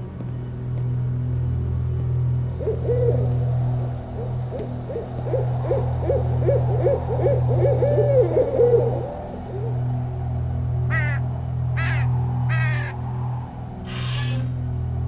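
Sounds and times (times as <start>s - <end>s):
steady low drone: 0.0s - 15.0s
owl hooting: 2.5s - 10.0s, 10.9s - 11.2s, 11.8s - 13.0s, 13.8s - 14.6s.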